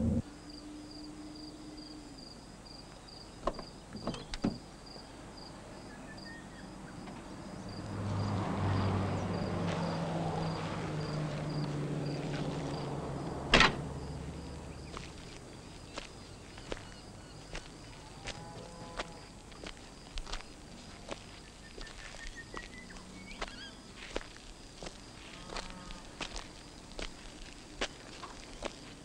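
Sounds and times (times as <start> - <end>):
low hum: 0.0 - 1.4
crickets chirping: 0.0 - 29.0
car door latch clicks: 13.5 - 13.8
car door slamming shut: 13.5 - 13.8.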